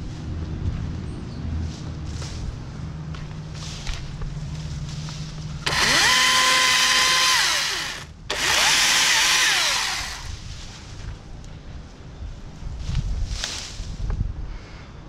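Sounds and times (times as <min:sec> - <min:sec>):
battery chainsaw whine: 0:05.6 - 0:10.4.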